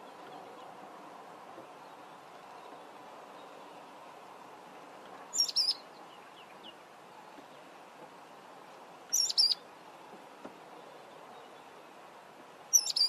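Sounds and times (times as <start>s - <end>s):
faint soft bird chirps: 5.4s - 7.4s, 9.1s - 9.6s, 12.7s - 13.0s.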